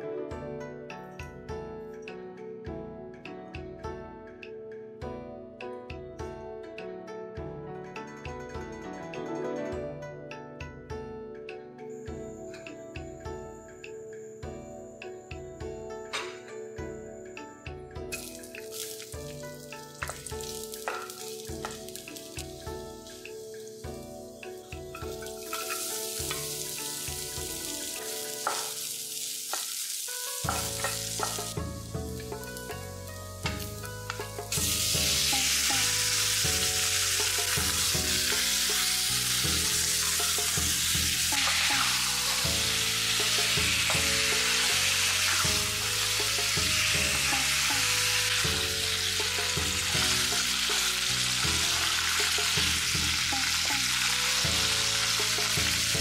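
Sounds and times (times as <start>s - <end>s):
food sizzling in oil: 18.1s - 56.0s
spatula scraping wok: 25.2s - 31.6s, 34.5s - 55.9s.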